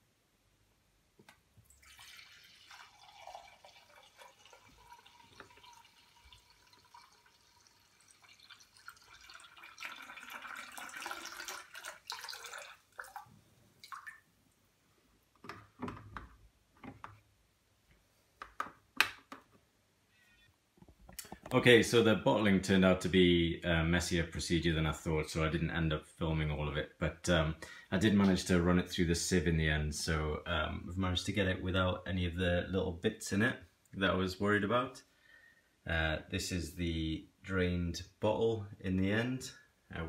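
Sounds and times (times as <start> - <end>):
liquid trickling into a bottle: 1.6 - 14.2.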